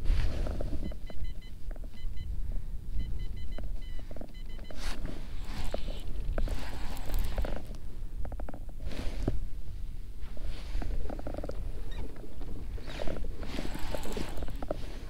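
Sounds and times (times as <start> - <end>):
clothing and gear rustling: 0.0 - 1.0, 3.8 - 7.8, 8.7 - 15.0
wind rumble on microphone: 0.0 - 15.0
short electronic beeps: 0.8 - 7.4.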